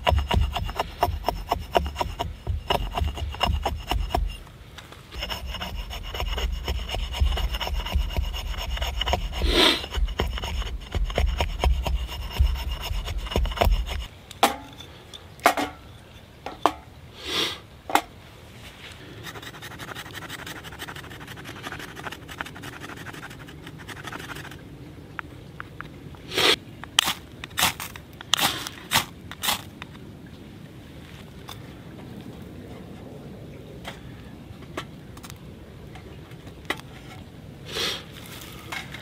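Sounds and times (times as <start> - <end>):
axe blade shaving stick: 0.0 - 4.4, 5.2 - 14.8
ferro rod striker scrapes: 0.0 - 4.5, 5.1 - 14.9
knife scraping stick: 0.0 - 4.5, 5.1 - 14.9, 19.2 - 24.6.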